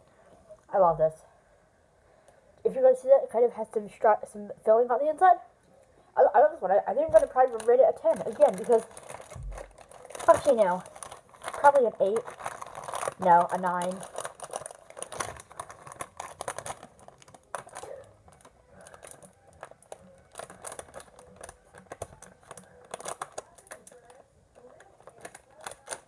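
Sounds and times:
packaging crinkling: 0:07.1 - 0:26.0.

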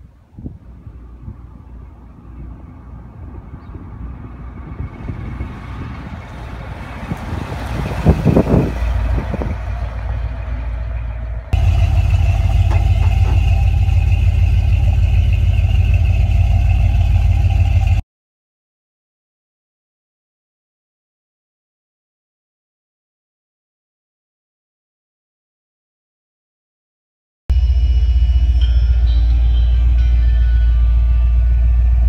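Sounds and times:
pickup truck engine passing: 0:00.0 - 0:18.0.

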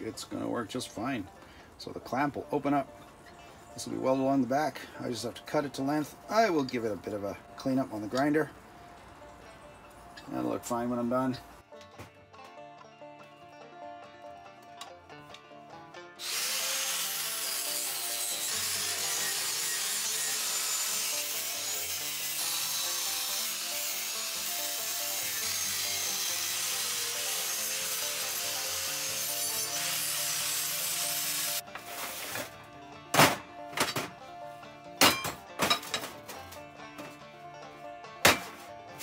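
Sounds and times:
angle grinder cutting steel: 0:16.2 - 0:32.5.

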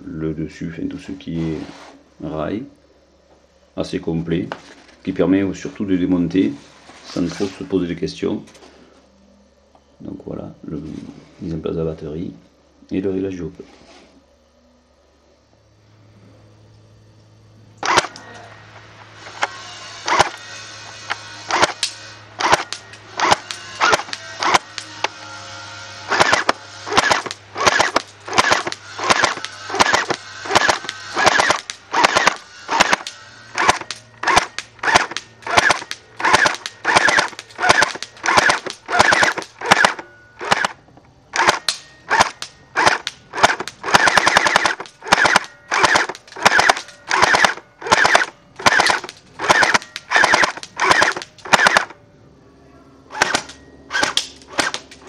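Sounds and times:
airsoft gun firing single shots: 0:22.4 - 0:24.6, 0:26.1 - 0:40.8, 0:41.4 - 0:52.0, 0:53.1 - 0:55.0.

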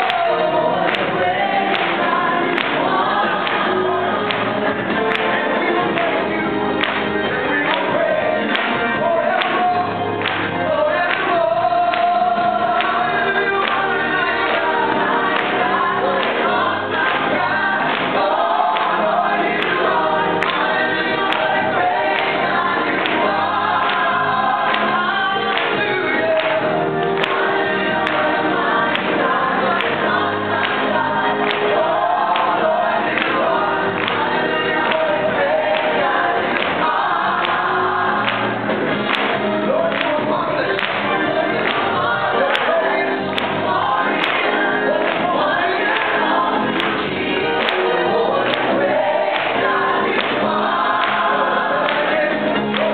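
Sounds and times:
group singing worship song: 0:00.0 - 0:52.9.

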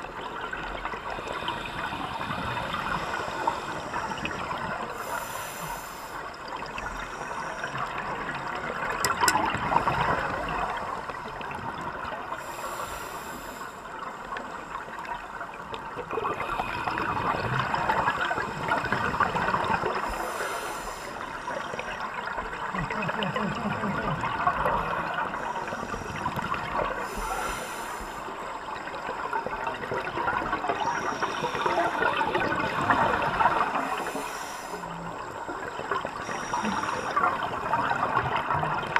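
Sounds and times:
exhaled bubbles gurgling: 0:00.0 - 0:38.9
regulator inhale hiss: 0:01.2 - 0:04.3, 0:04.9 - 0:07.9, 0:12.3 - 0:14.0, 0:20.0 - 0:21.9, 0:25.1 - 0:28.6, 0:30.8 - 0:32.1, 0:33.6 - 0:35.3, 0:36.1 - 0:37.6.

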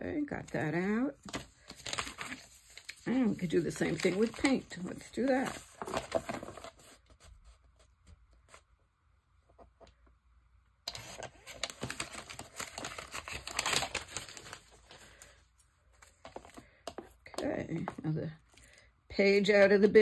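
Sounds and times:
paper rustling: 0:01.2 - 0:08.6, 0:10.9 - 0:17.0.

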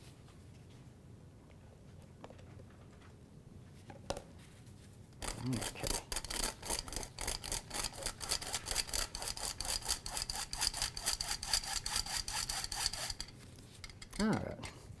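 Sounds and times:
flour sifter blades scraping: 0:05.2 - 0:14.0.

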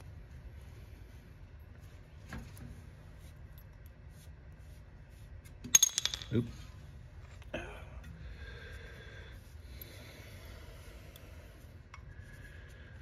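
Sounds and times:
metal hardware clinking: 0:05.7 - 0:06.5.

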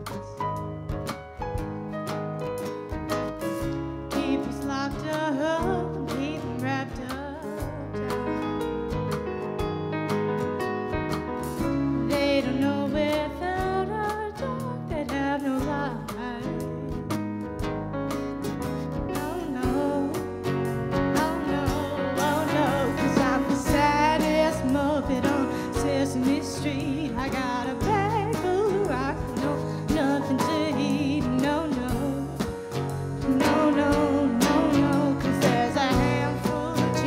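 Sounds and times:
live band playing: 0:00.0 - 0:37.0
person singing: 0:19.0 - 0:37.0.

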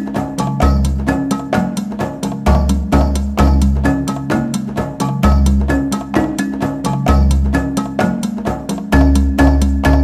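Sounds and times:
percussive beat: 0:00.0 - 0:10.0
held bass notes: 0:02.5 - 0:04.0.

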